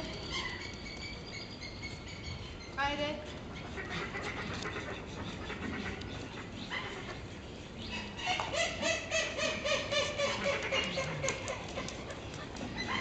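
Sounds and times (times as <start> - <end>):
penguin braying: 3.2 - 13.0.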